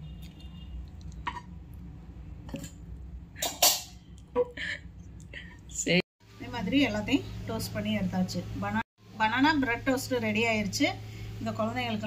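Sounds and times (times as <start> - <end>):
kitchen utensils clinking: 3.4 - 4.0.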